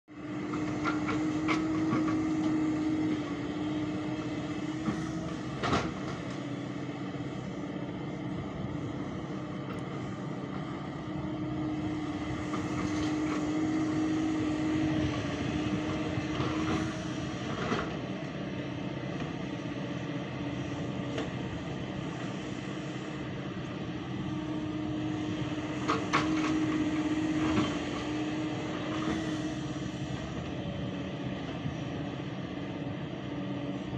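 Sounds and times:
excavator diesel engine: 0.0s - 33.9s.

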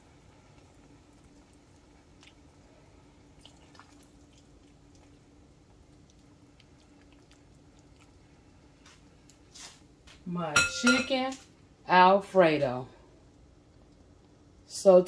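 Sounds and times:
wet squishes of pasta on plate: 0.0s - 10.2s
low steady hum: 0.0s - 15.0s.

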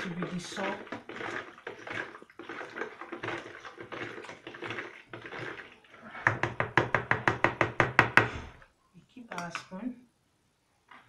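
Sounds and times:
spoon stirring in plastic bowl: 0.0s - 7.8s.

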